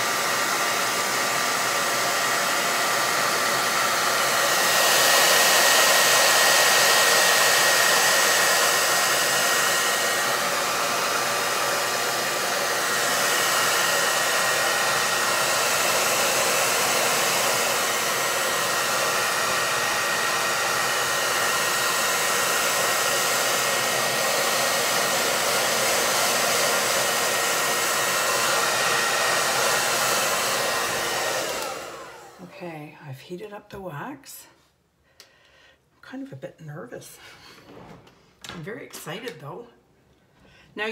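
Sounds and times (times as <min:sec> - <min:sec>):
blow dryer running: 0:00.0 - 0:32.6.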